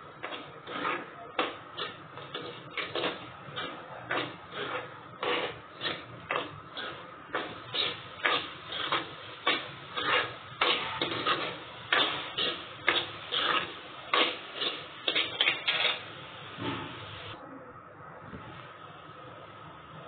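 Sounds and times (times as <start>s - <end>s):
steel ladle scraping a steel pan: 0.2s - 16.1s.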